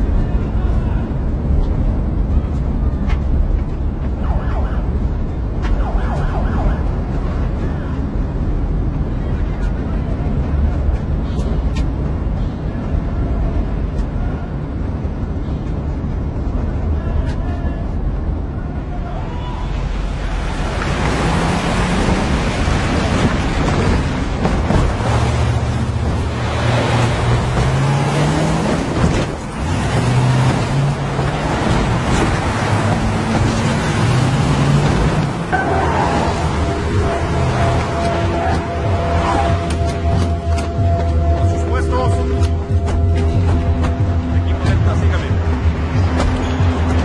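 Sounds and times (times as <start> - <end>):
siren wailing: 4.1 - 7.1, 35.4 - 44.5
rushing sound: 19.6 - 47.0
vehicle cabin rumble: 20.6 - 47.0.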